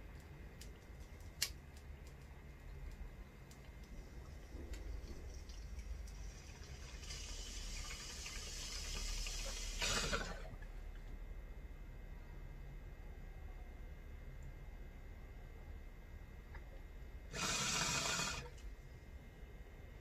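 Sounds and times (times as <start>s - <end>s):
water bubbling in bong: 4.6s - 10.6s.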